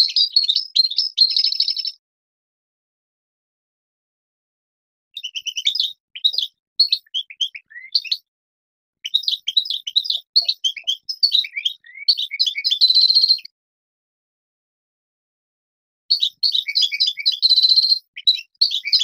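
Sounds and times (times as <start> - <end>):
goldfinch singing: 0.0 - 2.0, 5.2 - 8.3, 9.0 - 13.5, 16.1 - 19.0.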